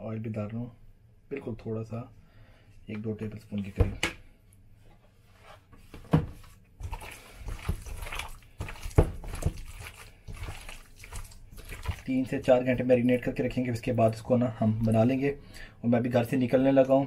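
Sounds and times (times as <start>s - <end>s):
wet squelching: 6.3s - 13.4s.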